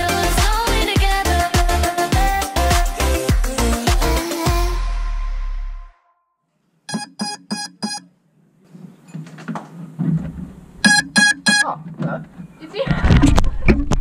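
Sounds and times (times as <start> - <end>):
short electronic beeps: 6.9 - 8.1, 10.8 - 11.8.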